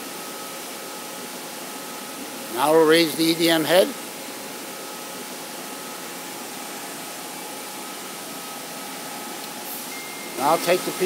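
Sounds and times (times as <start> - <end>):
faint high hum: 0.0 - 11.0
machine hiss: 9.6 - 11.0.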